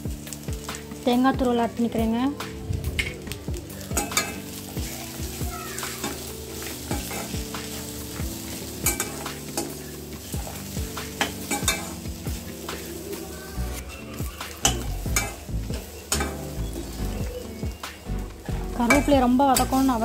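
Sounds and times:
light frying sizzle: 0:00.0 - 0:20.0
spatula scraping metal pan: 0:04.0 - 0:17.2.

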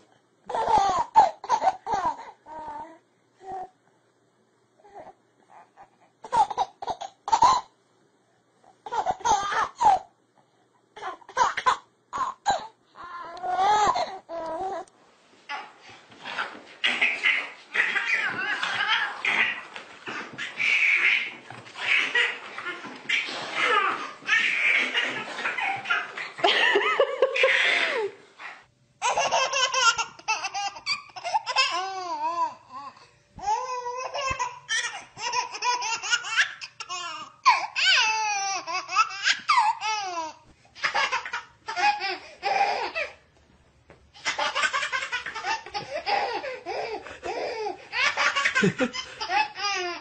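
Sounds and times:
baby laughing: 0:00.5 - 0:02.4, 0:06.2 - 0:07.7, 0:08.8 - 0:10.1, 0:15.5 - 0:28.2, 0:29.0 - 0:32.6, 0:33.4 - 0:43.2, 0:44.2 - 0:50.0.

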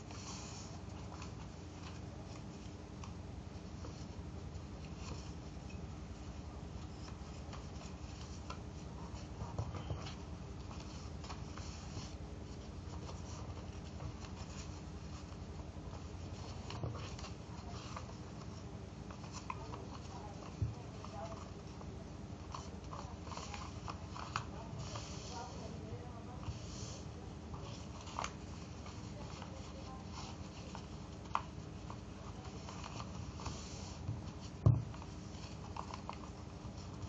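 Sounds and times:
paper rustling as it is folded: 0:00.0 - 0:37.0
steady low hum: 0:00.0 - 0:37.0.

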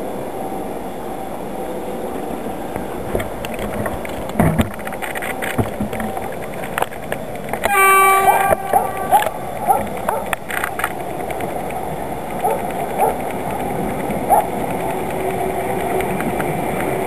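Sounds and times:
steady rumble: 0:00.0 - 0:17.0
locomotive horn blast: 0:07.6 - 0:10.8.

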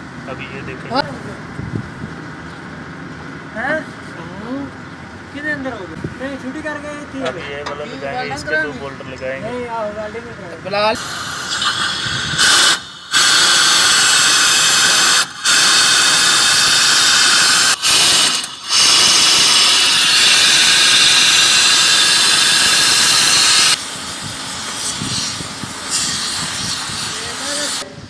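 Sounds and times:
pneumatic impact wrench: 0:11.0 - 0:27.9.

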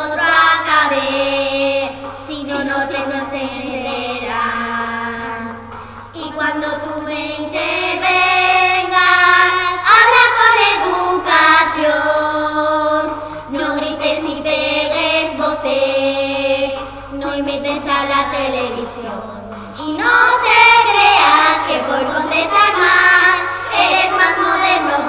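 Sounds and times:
girls singing together: 0:00.0 - 0:25.0.

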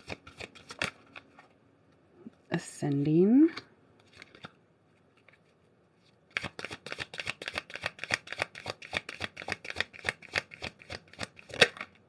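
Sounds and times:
cards being shuffled: 0:00.0 - 0:01.5, 0:04.0 - 0:12.0.

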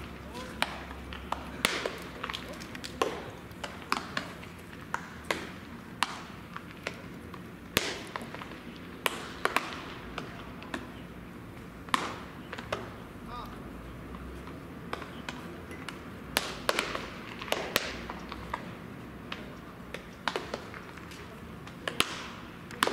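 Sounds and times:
baseballs smacking into gloves: 0:00.0 - 0:11.0, 0:11.8 - 0:22.9.

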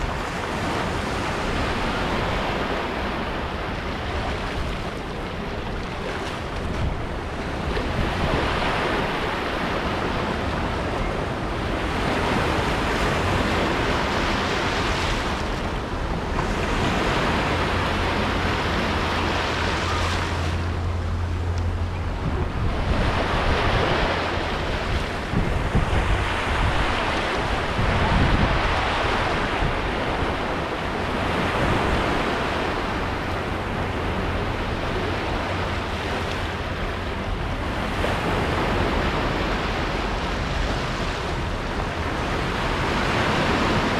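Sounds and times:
small waves washing on sand: 0:00.0 - 0:43.9
wind rumbling on microphone: 0:00.0 - 0:43.9.

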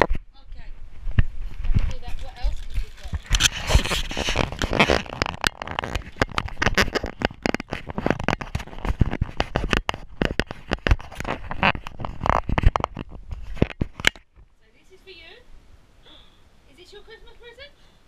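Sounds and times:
fur rubbing over microphone: 0:01.0 - 0:13.6.

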